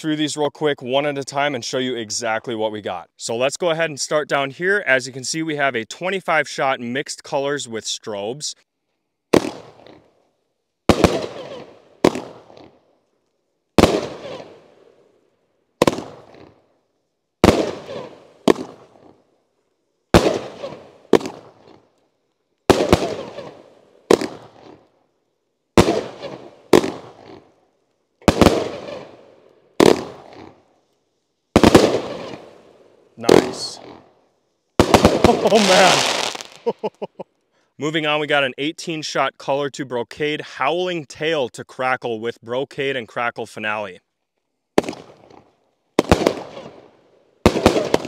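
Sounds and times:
firework bangs: 9.3 - 10.0, 10.9 - 12.8, 13.8 - 14.9, 15.8 - 16.6, 17.4 - 19.2, 20.1 - 21.8, 22.6 - 24.8, 25.7 - 27.5, 28.2 - 30.6, 31.5 - 34.1, 34.8 - 37.0, 44.8 - 45.4, 46.0 - 48.0.

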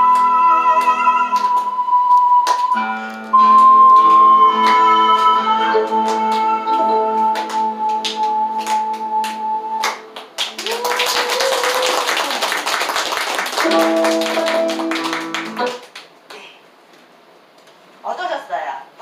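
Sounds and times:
ocarina long note: 0.0 - 10.2
recorded music accompaniment: 0.0 - 10.4, 13.6 - 15.9
audience clapping: 0.2 - 16.5
loud applause: 7.4 - 16.1.

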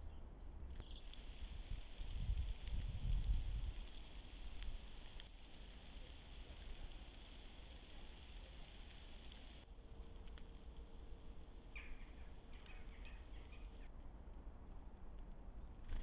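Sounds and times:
wind rumble on microphone: 0.0 - 16.0
steady hiss: 0.8 - 13.7
songbirds calling high notes: 3.3 - 9.6, 11.6 - 14.0.

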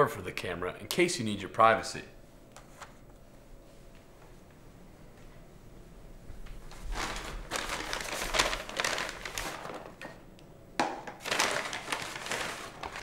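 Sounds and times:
paper and plastic bags crinkling: 6.5 - 10.1, 11.1 - 13.0.

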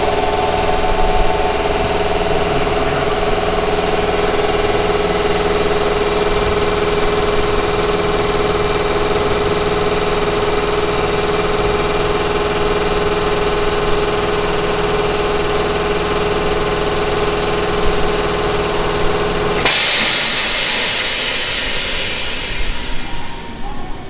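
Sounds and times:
air compressor running: 0.0 - 24.0
hiss of air released: 19.6 - 24.0.

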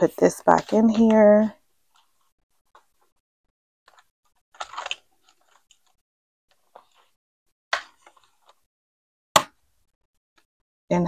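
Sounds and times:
plastic envelopes rustling: 3.9 - 6.0.

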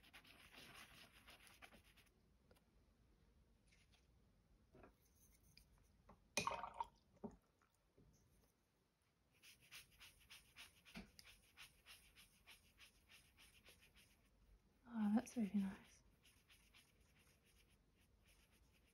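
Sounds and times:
paintbrush strokes on paper: 0.0 - 2.1, 9.3 - 18.9.

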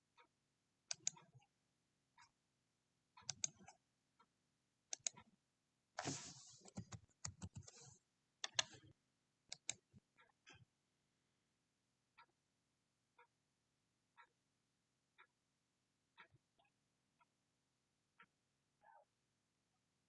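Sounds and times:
keyboard and mouse clicks: 0.9 - 1.4, 3.2 - 3.8, 4.9 - 5.2, 6.0 - 8.9, 9.5 - 10.6.

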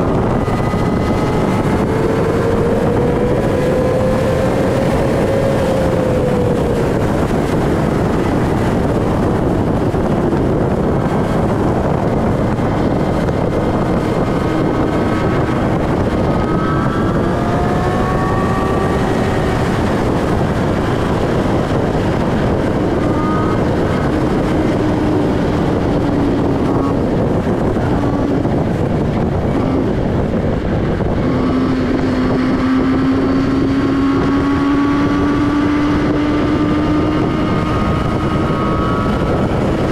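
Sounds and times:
motorcycle engine running: 0.0 - 39.9
wind noise on microphone: 0.0 - 39.9.

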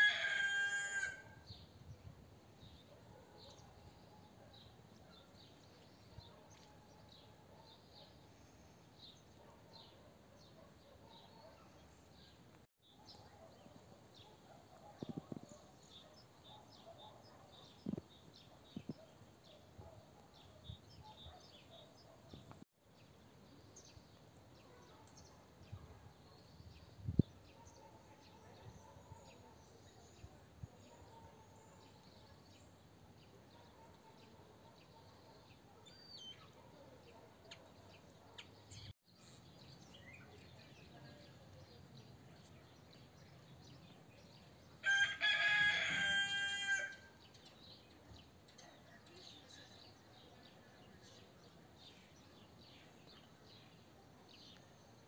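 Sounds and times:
rooster crowing: 0.0 - 1.4, 44.8 - 47.1
small birds twittering: 2.8 - 44.6.

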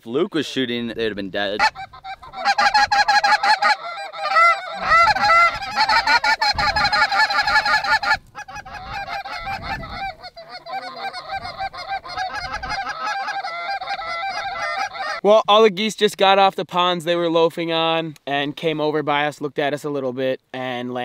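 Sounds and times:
flock of geese honking: 1.4 - 15.2.

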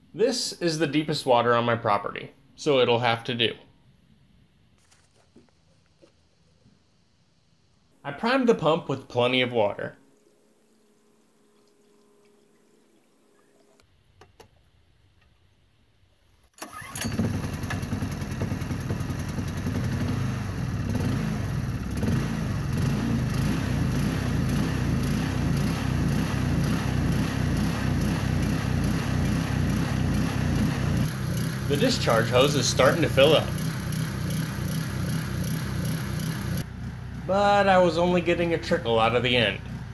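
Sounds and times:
gasoline pump engine running: 16.6 - 39.9.

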